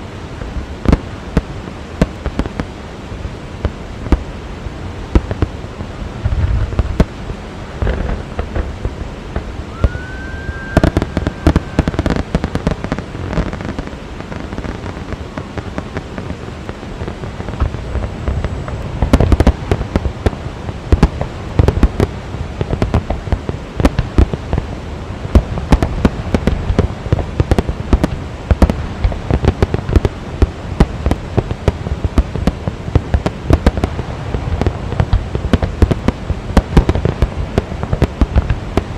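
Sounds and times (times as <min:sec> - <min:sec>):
fireworks bangs and pops: 0:00.3 - 0:02.8, 0:03.6 - 0:04.3, 0:05.1 - 0:38.9
rising firework whistle: 0:09.7 - 0:13.6.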